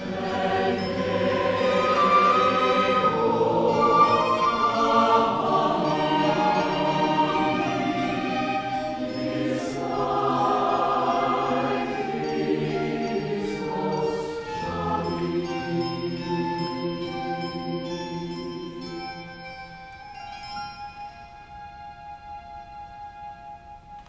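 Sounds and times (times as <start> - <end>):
violin: 0.0 - 17.8
flute: 0.0 - 17.9, 18.8 - 24.0
choir singing held notes: 0.0 - 19.9.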